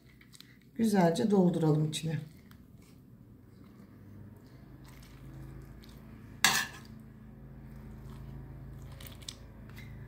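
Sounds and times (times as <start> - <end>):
low steady hum: 0.0 - 10.0
spoon clinking on metal pot: 6.4 - 6.9.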